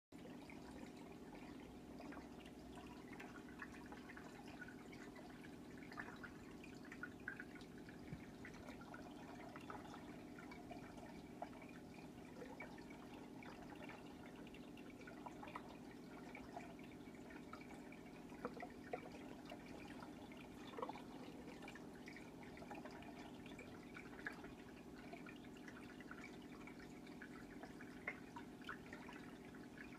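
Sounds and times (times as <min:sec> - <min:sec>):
water drips and small splashes: 0:00.1 - 0:29.9.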